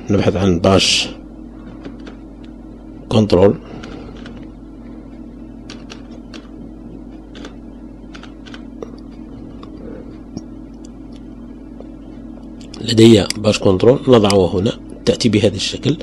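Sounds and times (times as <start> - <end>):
steady low hum: 0.0 - 16.0
keyboard keys clicking: 5.6 - 6.6, 7.2 - 9.8.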